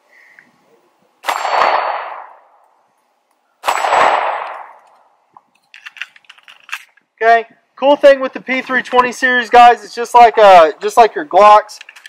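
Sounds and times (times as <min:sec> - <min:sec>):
pistol shots: 0:01.2 - 0:02.6, 0:03.6 - 0:05.0.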